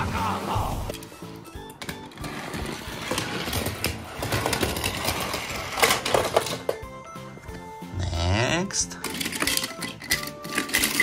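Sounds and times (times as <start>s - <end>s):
toy car rattling and clicking: 2.2s - 6.8s, 8.9s - 11.0s.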